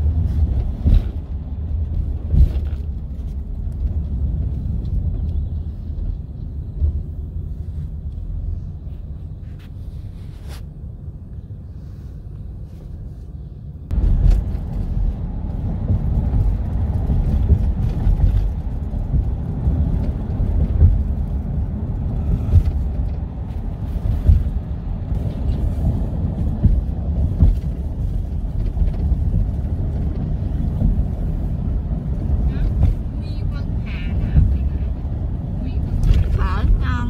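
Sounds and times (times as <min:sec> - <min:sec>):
vehicle rumble: 0:00.0 - 0:37.0
wind noise on microphone: 0:13.9 - 0:37.0.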